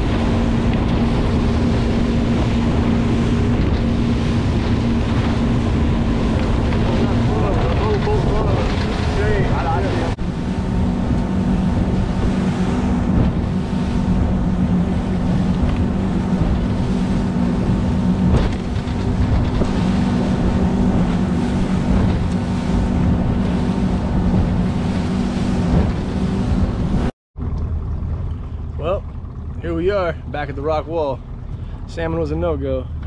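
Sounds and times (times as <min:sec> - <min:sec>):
water rushing past hull: 0:00.0 - 0:27.1
boat motor droning: 0:00.0 - 0:33.0
wind buffeting microphone: 0:00.0 - 0:33.0.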